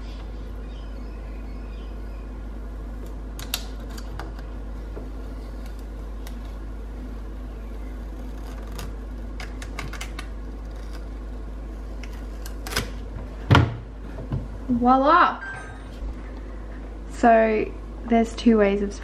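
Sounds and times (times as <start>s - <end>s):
steady low hum: 0.0s - 19.0s
tape peeling with crackles: 5.1s - 6.7s, 7.7s - 13.1s.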